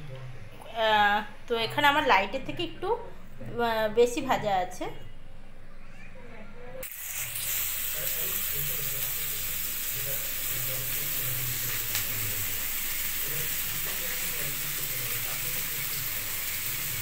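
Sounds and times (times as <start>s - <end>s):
onions sizzling in oil: 6.8s - 17.0s.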